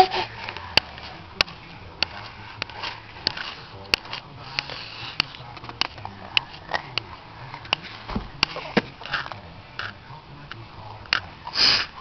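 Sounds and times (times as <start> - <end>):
baby sniffing: 11.5 - 12.0.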